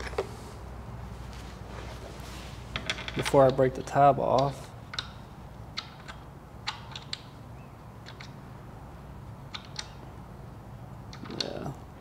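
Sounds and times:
light metal clicks of bolt: 4.3 - 5.2, 5.8 - 7.4, 8.0 - 8.4, 9.5 - 10.0.

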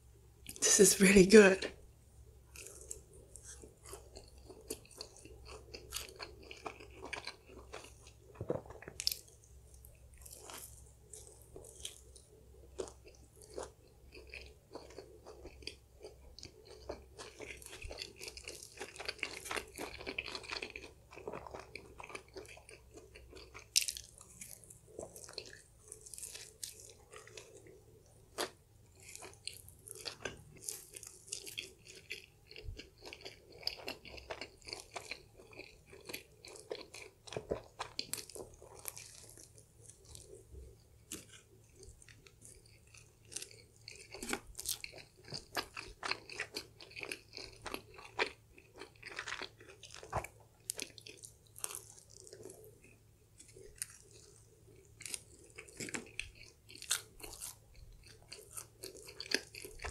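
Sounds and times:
chewing pizza: 2.5 - 59.9
crust crunching: 5.7 - 9.2, 55.0 - 59.9.

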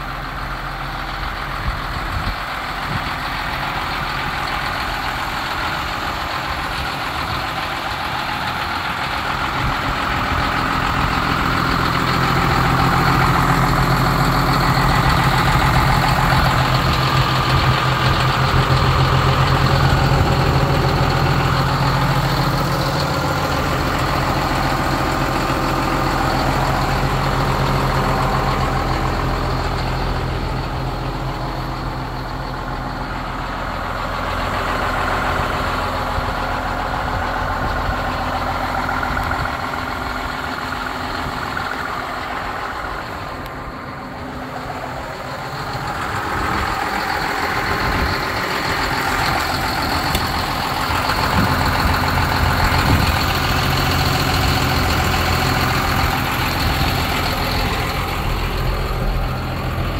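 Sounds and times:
tractor diesel engine idling: 0.0 - 59.9.

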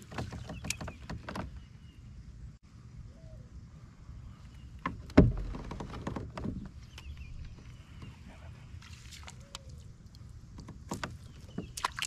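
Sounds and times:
faint bird chirps: 3.0 - 4.8
low cooing call: 9.4 - 9.9.

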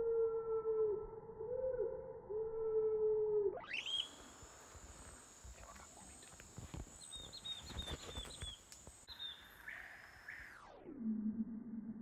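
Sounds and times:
high insect buzz: 3.6 - 10.6
bird chirping: 3.7 - 4.5, 6.9 - 10.7.

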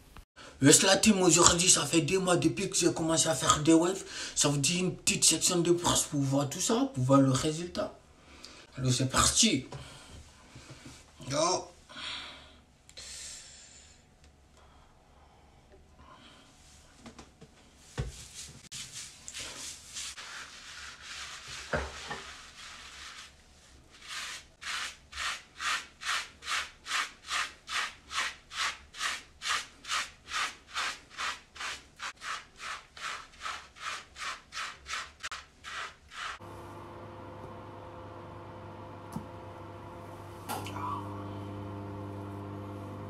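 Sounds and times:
brush scrubbing through hair: 18.0 - 36.4.

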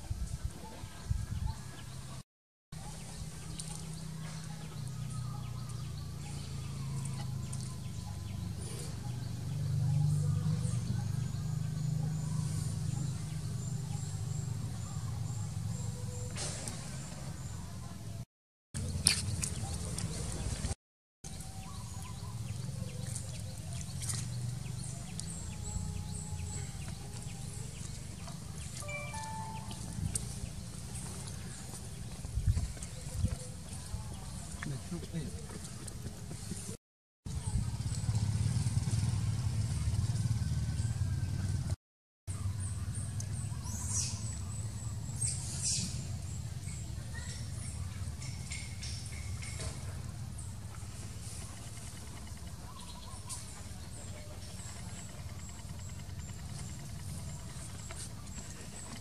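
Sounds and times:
short high chirps: 28.8 - 30.4
steady low hum: 50.0 - 59.0.

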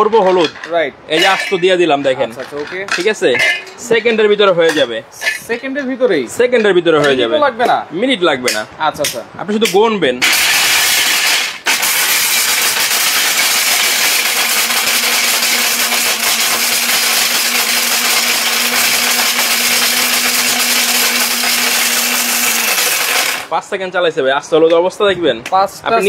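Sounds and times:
mixer grinder whirring: 10.2 - 23.5
motor winding down: 10.2 - 23.5.

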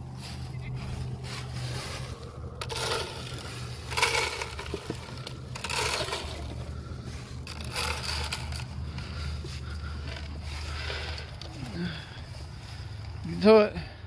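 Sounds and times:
feed pouring into plastic troughs: 2.6 - 6.6.

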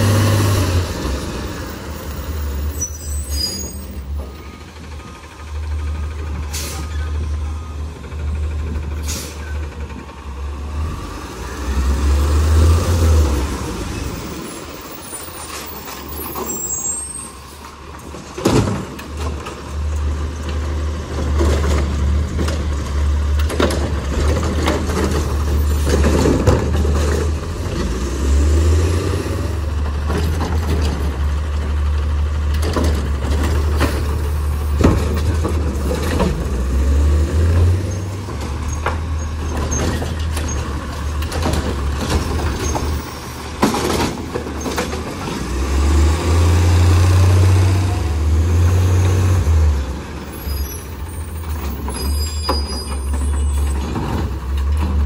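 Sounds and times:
air brake hisses: 6.5 - 6.9, 9.0 - 9.5.

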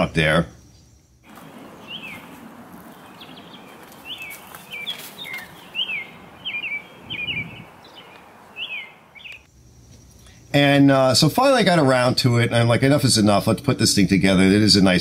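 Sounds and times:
small birds chirping: 0.0 - 10.7
outdoor ambience hiss: 0.0 - 15.0.

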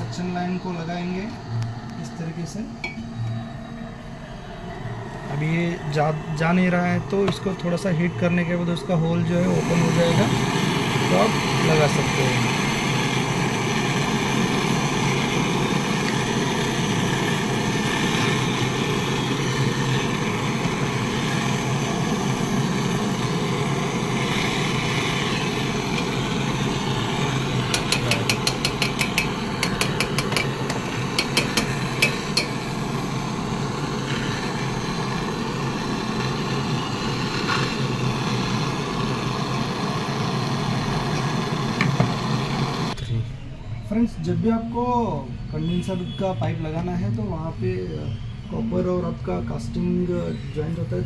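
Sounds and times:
brazing torch hissing: 4.3 - 43.0.

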